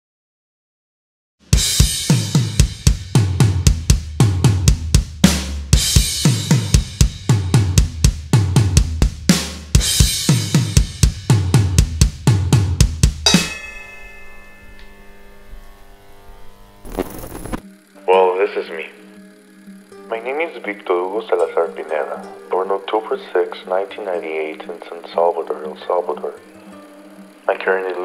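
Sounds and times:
drum kit beat: 1.4s - 14.2s
held chord: 13.2s - 16.9s, 17.6s - 28.0s.

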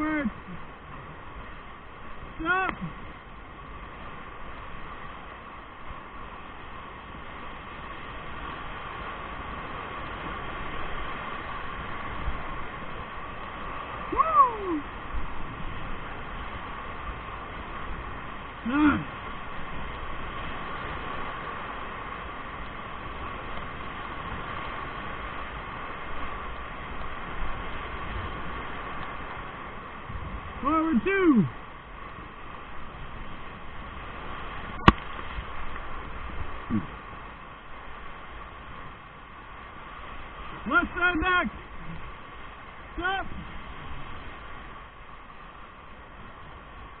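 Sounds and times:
whitewater rapids roaring: 0.0s - 47.0s.

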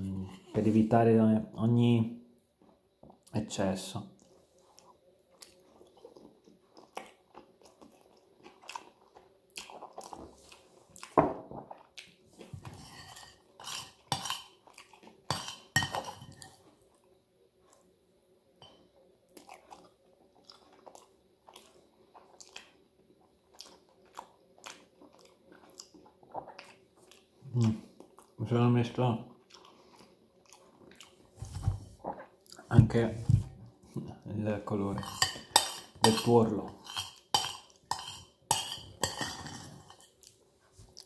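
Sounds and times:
chewing: 4.2s - 17.9s, 19.3s - 28.4s, 29.3s - 31.4s, 36.9s - 41.0s
fork and spoon clinking on plate: 35.0s - 40.1s.

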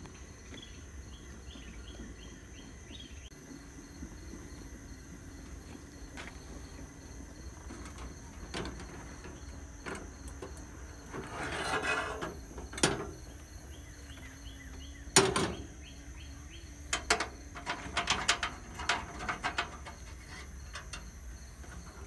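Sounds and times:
pot scraping on steel grate: 7.4s - 15.9s, 16.8s - 22.0s.

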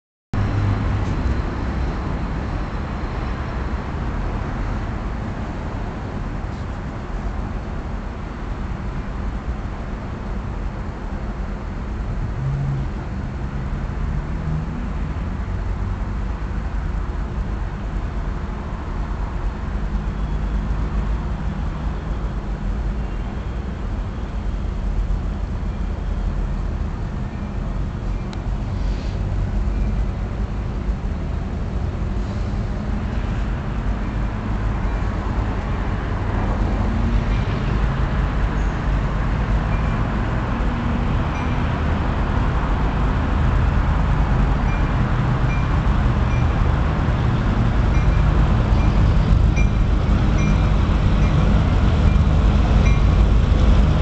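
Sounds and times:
diesel locomotive engines rumbling: 0.4s - 54.0s
hiss: 28.7s - 29.3s.

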